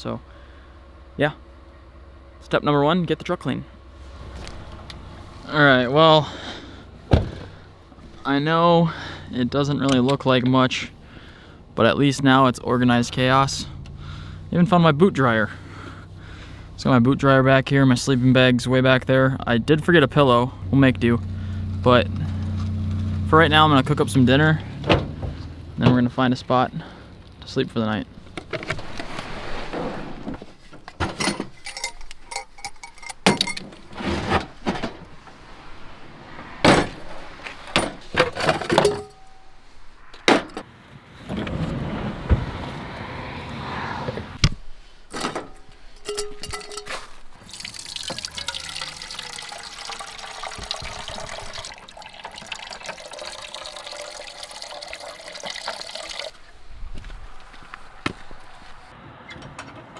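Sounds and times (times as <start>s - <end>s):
camp cooking gear clattering: 30.2s - 35.3s, 36.7s - 39.5s, 45.1s - 56.3s
water running into a pot: 46.0s - 56.4s.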